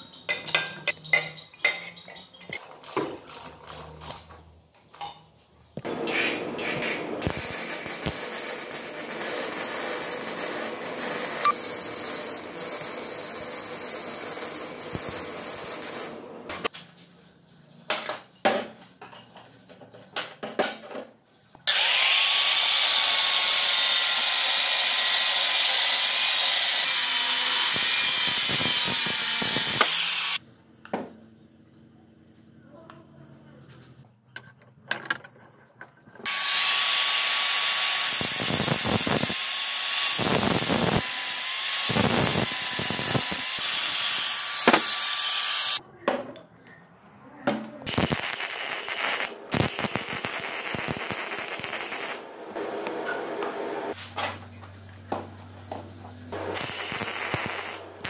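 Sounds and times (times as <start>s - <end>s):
power tool running: 5.8s - 16.5s, 36.3s - 45.8s.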